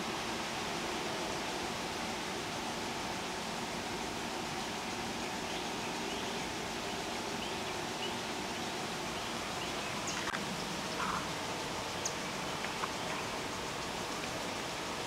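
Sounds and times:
steady hiss: 0.0s - 15.0s
small ticks: 12.0s - 14.4s.

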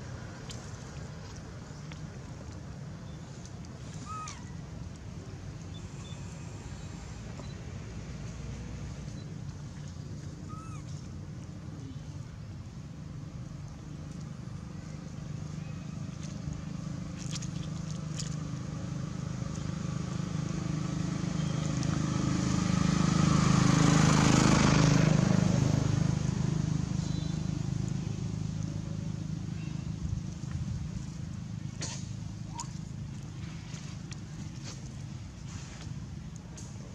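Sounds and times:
vehicle engine passing: 13.0s - 34.8s.

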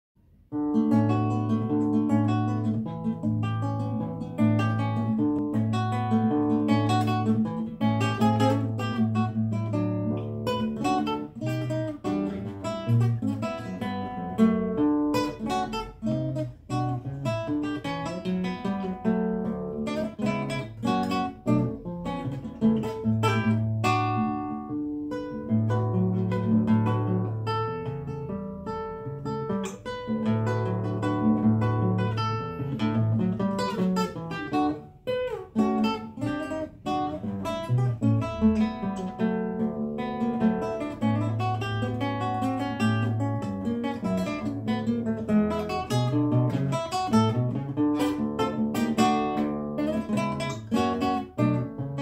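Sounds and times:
fingerstyle classical guitar: 0.2s - 52.0s.

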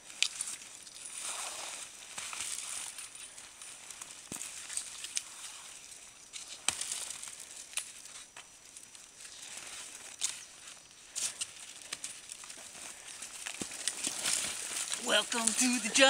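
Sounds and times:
branches scraping clothing: 0.0s - 8.4s, 9.1s - 16.0s
swishing and crunching of snow: 1.0s - 3.0s
twigs snapping: 6.4s - 8.0s, 11.1s - 15.8s.

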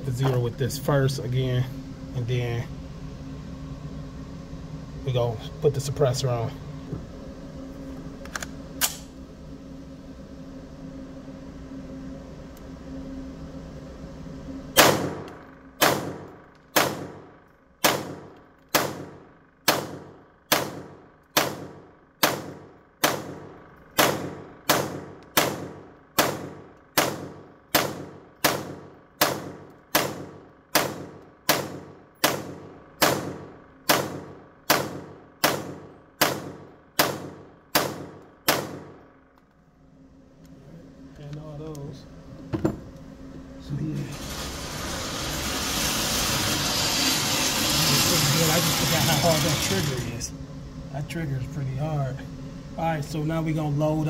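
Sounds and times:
steady low hum: 0.0s - 54.0s
rifle shots ringing indoors: 14.8s - 39.3s.

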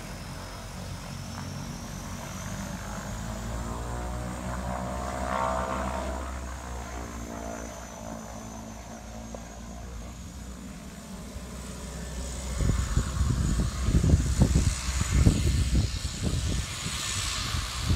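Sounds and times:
high turbine whine: 0.0s - 17.9s
turboprop engines humming: 0.0s - 17.9s
wind buffeting microphone: 12.0s - 17.9s.

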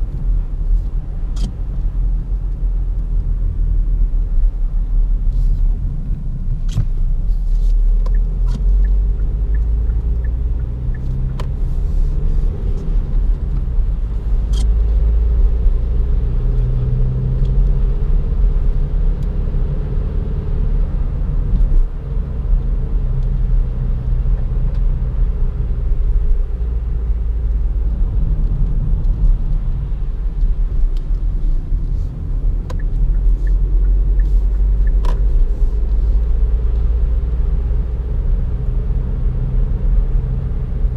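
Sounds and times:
car engine and road rumble: 0.0s - 40.9s
turn signal ticking: 7.8s - 20.0s, 27.4s - 38.0s.

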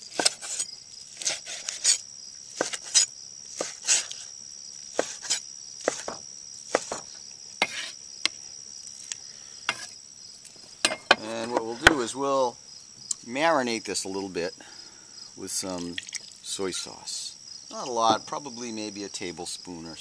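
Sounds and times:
high insect trill: 0.0s - 20.0s
soft knife scrapes: 0.1s - 2.0s, 2.6s - 4.3s, 5.0s - 6.1s, 7.6s - 8.0s, 8.9s - 10.0s
knife hitting cutting board: 6.8s - 7.0s.

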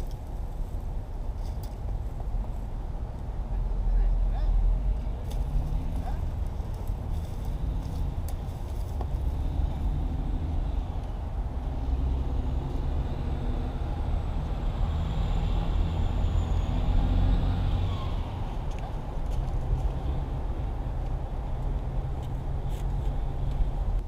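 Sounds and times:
traffic rumble: 0.0s - 24.0s
vehicle passing: 4.6s - 23.8s.

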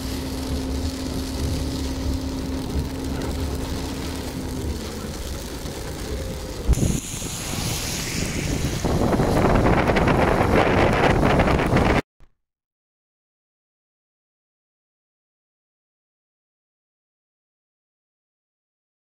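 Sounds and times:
car driving on a wet road: 0.0s - 12.0s
wind rushing over the microphone: 0.0s - 12.1s.

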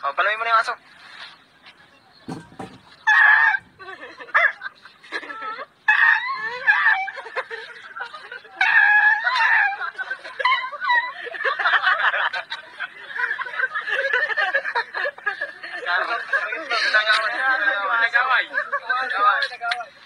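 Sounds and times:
laughter: 3.7s - 5.7s, 6.5s - 19.7s.

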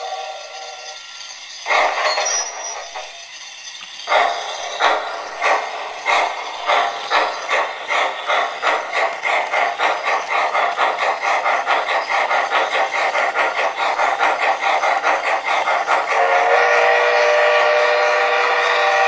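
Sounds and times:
steam locomotive chuffing: 0.0s - 19.0s.

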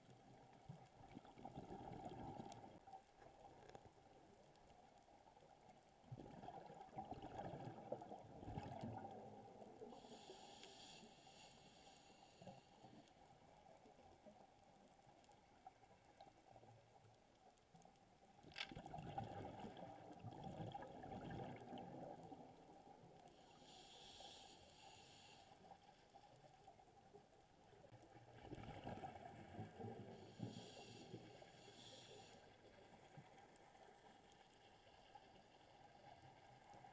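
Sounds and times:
exhaled bubbles gurgling: 0.7s - 2.9s, 6.0s - 10.0s, 18.7s - 22.6s
regulator inhale hiss: 9.9s - 13.1s, 23.3s - 26.0s, 30.1s - 32.6s.

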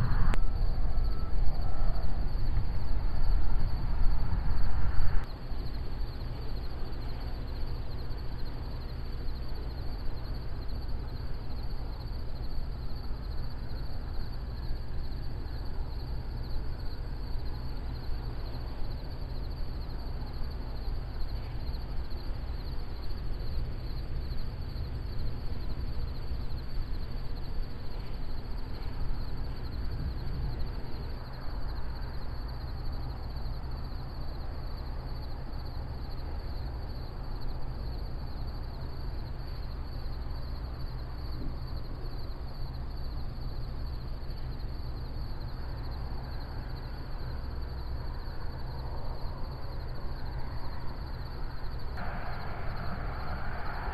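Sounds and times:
low rumble: 0.0s - 5.3s, 51.8s - 53.9s
insects trilling: 0.0s - 53.9s.

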